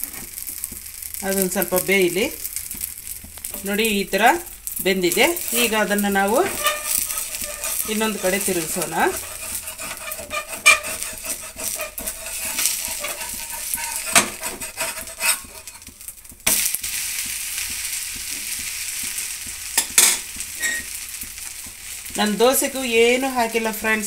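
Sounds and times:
food sizzling on hot pan: 0.0s - 24.0s
spatula scraping a pan: 5.0s - 22.6s.

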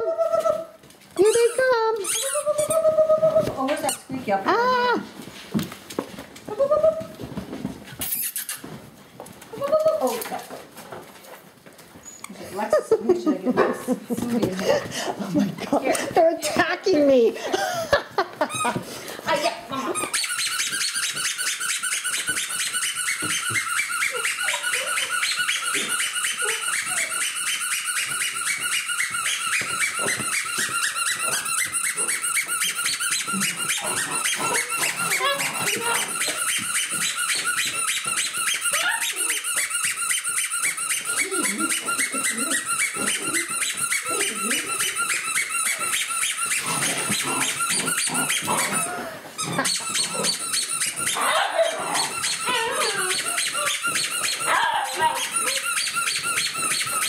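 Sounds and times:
rapid high-pitched squeaking: 1.2s - 3.0s, 7.9s - 8.8s, 20.0s - 57.0s
puppies growling and yapping: 18.4s - 57.0s.

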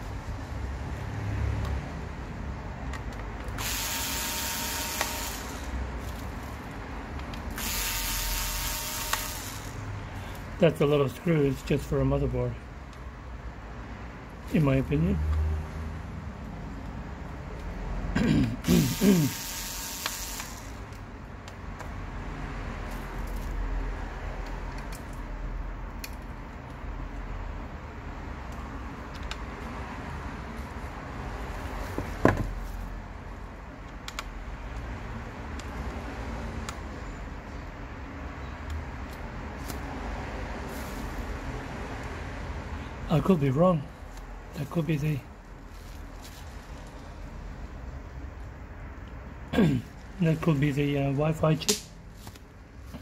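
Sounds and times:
electric screwdriver whine: 3.6s - 5.8s, 7.5s - 9.8s, 18.6s - 20.8s.

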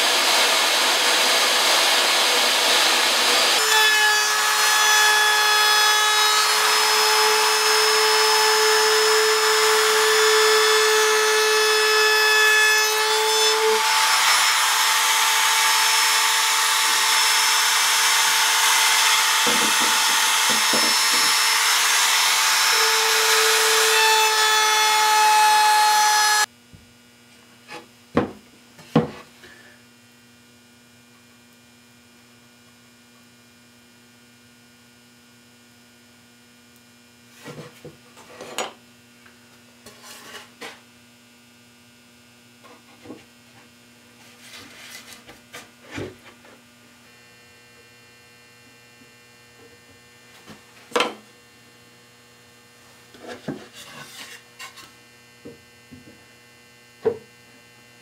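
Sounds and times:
trim router whining: 0.0s - 26.5s.

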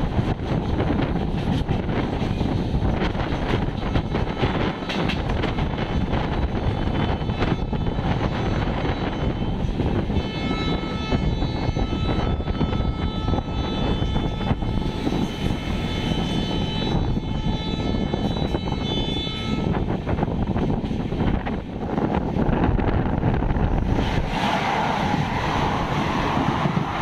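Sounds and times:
train wheels rumbling on track: 0.0s - 27.0s
rushing air: 19.8s - 27.0s.

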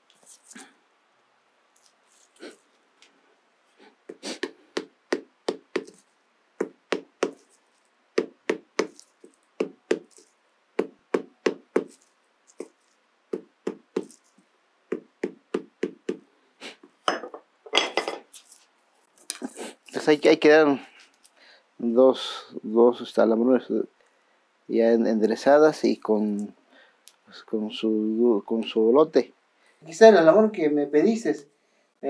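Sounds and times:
sharp knocks: 8.2s - 9.0s.

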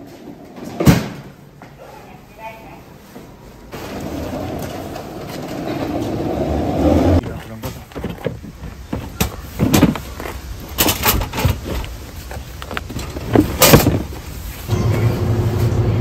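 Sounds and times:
plastic cooler knocking and scraping: 7.2s - 14.2s.

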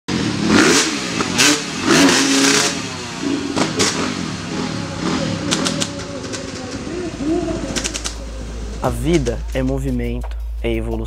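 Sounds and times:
motocross bike engines revving: 0.1s - 10.0s
sharp clicks: 7.7s - 8.2s.

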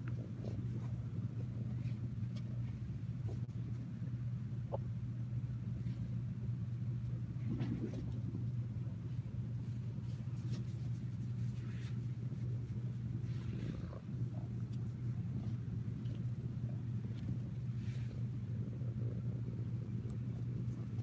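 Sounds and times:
cat purring: 7.3s - 9.1s, 11.6s - 21.0s
hands stroking fur: 9.6s - 15.7s.

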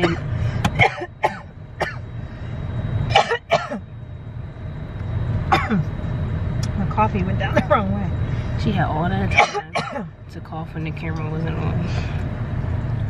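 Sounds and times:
woman coughing: 0.0s - 2.0s, 3.1s - 3.8s, 5.5s - 5.9s, 7.4s - 7.9s, 9.3s - 10.2s
car running rumble: 0.0s - 13.0s.

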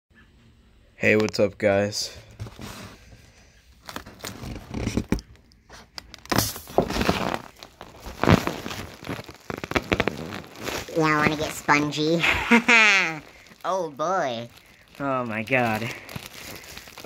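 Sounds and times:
foil balloon crinkling: 2.4s - 17.0s
foil film tearing: 6.0s - 17.0s.

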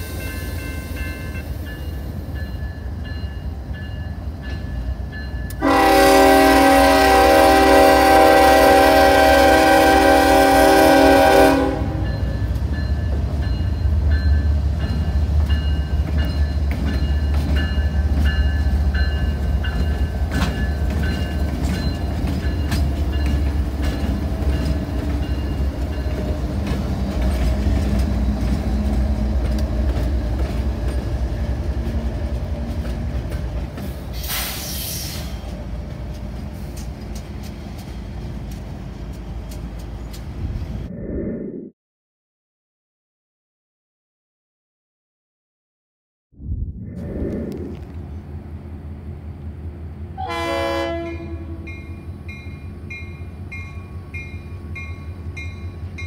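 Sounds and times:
crossing bell ringing: 0.0s - 5.8s, 11.9s - 26.4s, 51.6s - 56.0s
locomotive horn: 5.5s - 12.3s, 50.1s - 52.0s.

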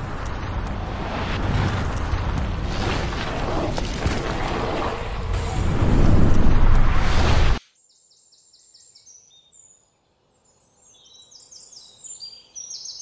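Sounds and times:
loud rushing rumble: 0.0s - 7.6s
small birds chirping: 7.9s - 13.0s.

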